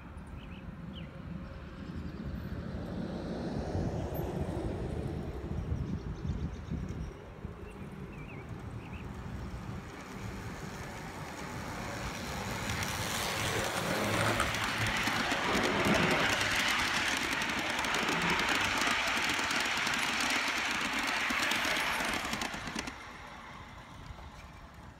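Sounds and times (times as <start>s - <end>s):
model train wheels rattling on rails: 8.4s - 24.9s.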